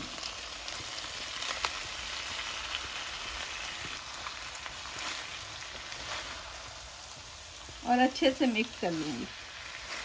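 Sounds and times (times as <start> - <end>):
food sizzling in a wok: 0.0 - 10.0.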